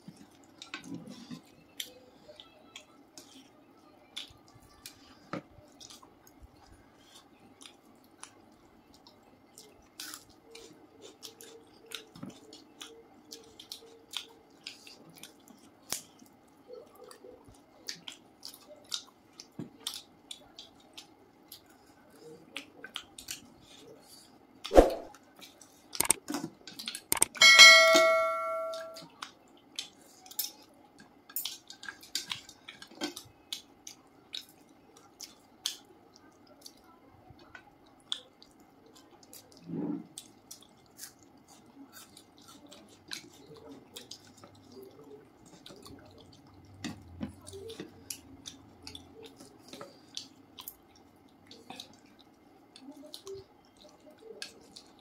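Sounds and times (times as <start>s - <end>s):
wet eating sounds: 0.0s - 27.3s, 29.0s - 55.0s
tableware ringing: 27.3s - 29.0s.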